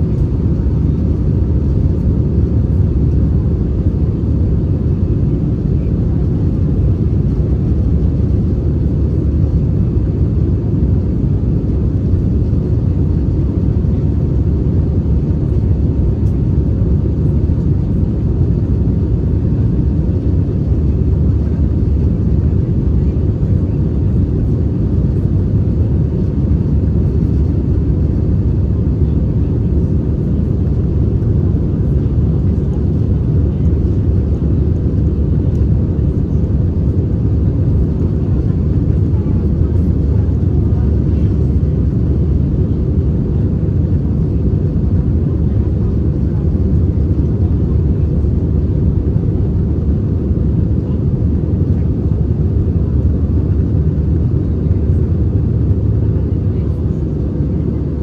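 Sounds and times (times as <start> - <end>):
jet engines rumbling: 0.0 - 58.0.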